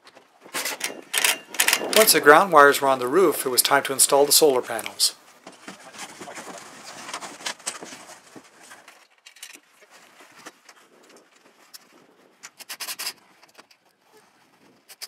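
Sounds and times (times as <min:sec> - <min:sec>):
solar panels clicking on metal rails: 0:00.0 - 0:02.5.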